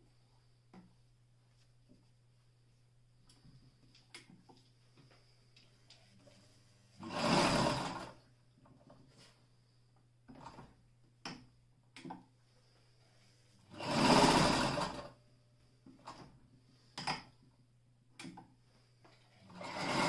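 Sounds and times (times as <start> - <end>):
sewing machine stitching leather: 7.0 - 8.2, 10.3 - 10.8, 13.7 - 15.2, 19.5 - 20.0.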